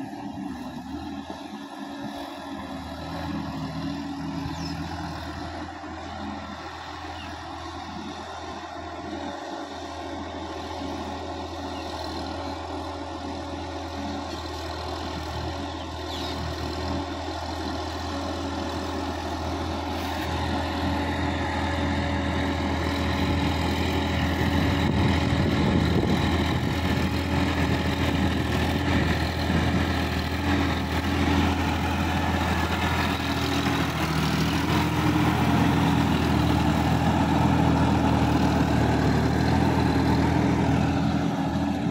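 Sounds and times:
tractor diesel engine running: 0.0s - 41.9s
water and mud churning: 16.4s - 41.9s.

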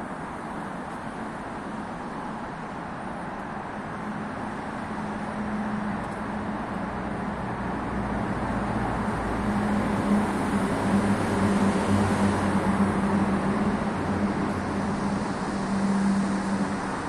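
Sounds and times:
metro train rumble: 0.0s - 17.0s.

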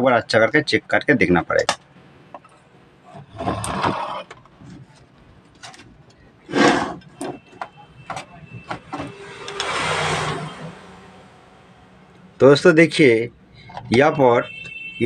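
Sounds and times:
circuit board rustling and scraping: 2.4s - 10.8s.

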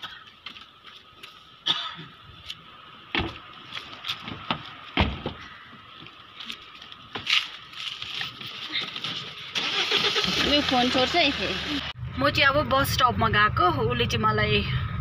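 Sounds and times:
car door knocks and clicks: 3.1s - 3.4s, 4.3s - 5.4s
car door slamming shut: 3.1s - 3.4s, 5.0s - 5.4s.

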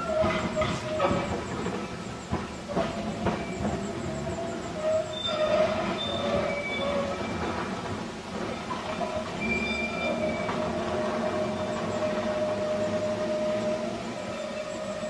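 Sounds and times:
tram rumble: 0.0s - 15.0s
tram wheels squealing: 0.0s - 15.0s
wheels clicking over rail joints: 0.0s - 15.0s.

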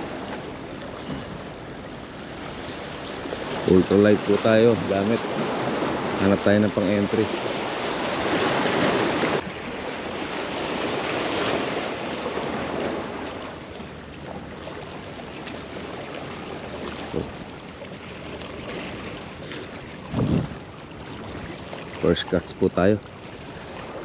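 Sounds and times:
waves breaking against rocks: 2.3s - 24.0s
wind noise on microphone: 20.0s - 21.5s.

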